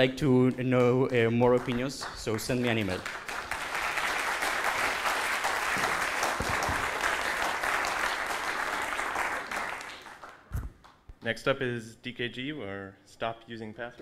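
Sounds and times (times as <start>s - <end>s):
audience applauding: 0.7s - 10.5s.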